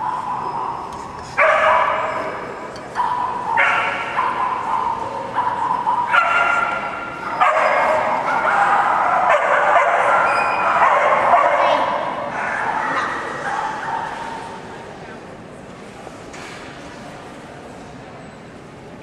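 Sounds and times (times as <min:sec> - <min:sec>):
dog yelping and whining: 0:10.0 - 0:10.9.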